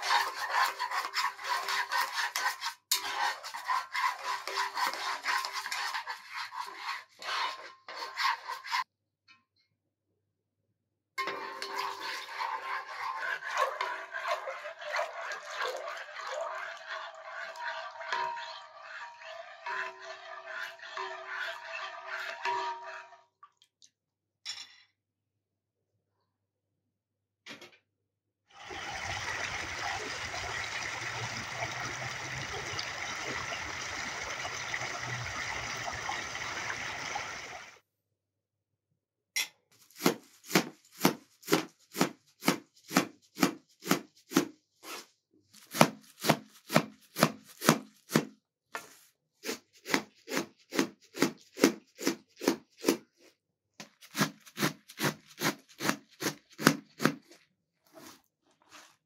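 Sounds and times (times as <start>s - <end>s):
knife chopping herbs on metal tray: 39.9s - 44.6s, 45.6s - 48.3s, 49.4s - 53.1s, 53.9s - 57.3s.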